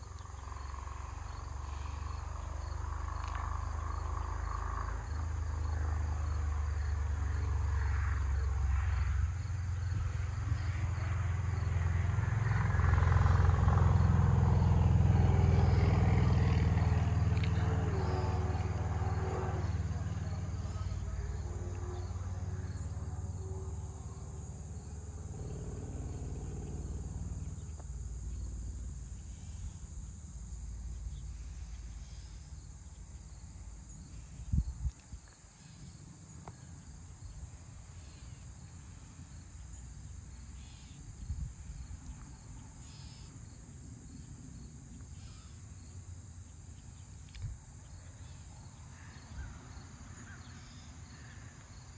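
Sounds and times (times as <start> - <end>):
low vehicle rumble: 0.0 - 35.0
crickets chirping: 0.0 - 51.9.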